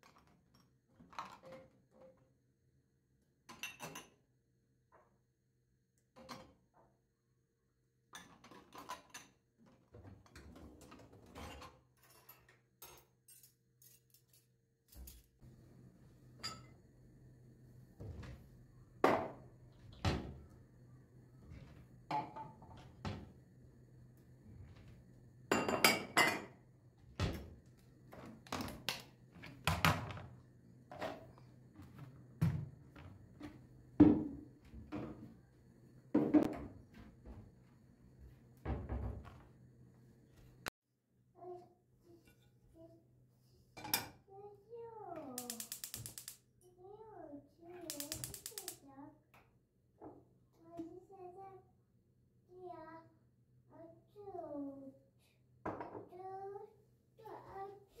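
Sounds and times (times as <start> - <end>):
dishes clinking and knocking: 3.5 - 4.2, 16.4 - 16.8, 22.1 - 23.3, 25.5 - 26.6, 34.0 - 35.3, 36.2 - 36.8.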